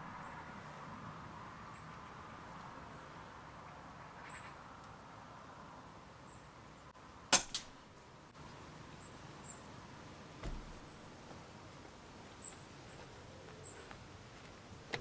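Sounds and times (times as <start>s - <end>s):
fainter crack: 7.3s - 7.8s
dull thump: 10.4s - 11.0s.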